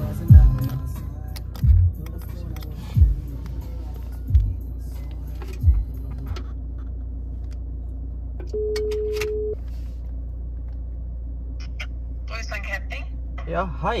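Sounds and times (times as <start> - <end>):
car engine idling: 0.0 - 8.8.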